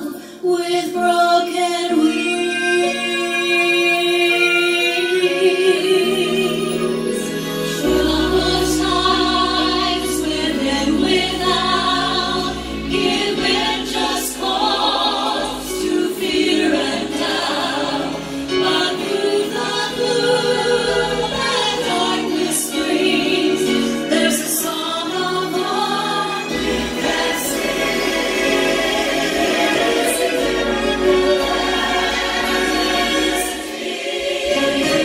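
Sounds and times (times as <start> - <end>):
church choir singing: 0.0 - 35.0
lead vocalists singing: 0.0 - 35.0.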